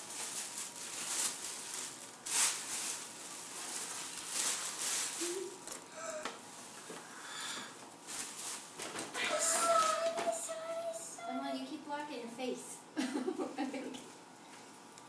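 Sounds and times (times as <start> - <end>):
tissue paper rustling: 0.0 - 5.7, 8.0 - 10.6.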